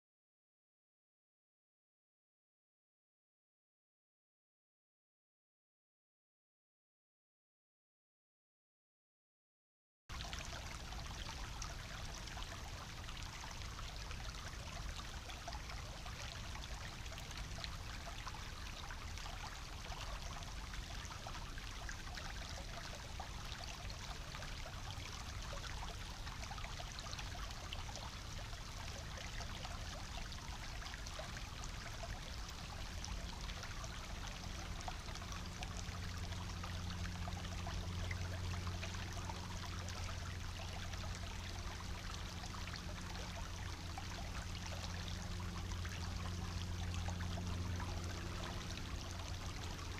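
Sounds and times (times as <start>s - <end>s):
brook bubbling over stones: 10.1s - 49.9s
low hum: 10.2s - 49.9s.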